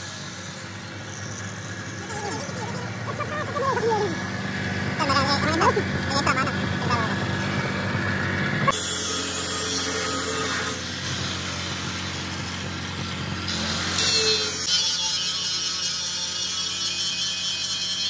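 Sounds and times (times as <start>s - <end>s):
power tool hissing on steel: 0.0s - 3.1s, 8.7s - 18.0s.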